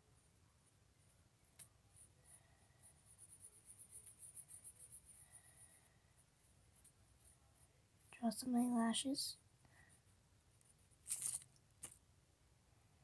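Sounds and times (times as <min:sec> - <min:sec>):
pencil scratching on paper: 0:01.9 - 0:08.2.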